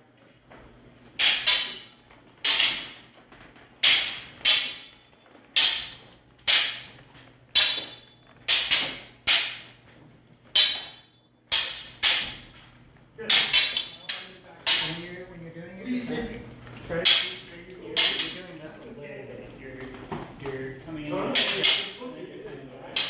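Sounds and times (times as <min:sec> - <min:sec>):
swords clashing: 0:01.2 - 0:03.1, 0:03.8 - 0:09.8, 0:10.5 - 0:12.5, 0:13.2 - 0:15.1, 0:16.9 - 0:18.5, 0:21.3 - 0:22.2.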